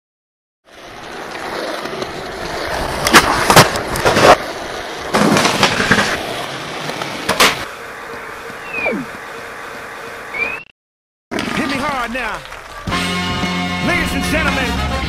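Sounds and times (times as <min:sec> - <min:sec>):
skateboard wheels rolling on pavement: 0:00.6 - 0:10.6, 0:11.3 - 0:14.5
skateboard clacks and impacts: 0:01.5 - 0:04.4, 0:05.1 - 0:07.7.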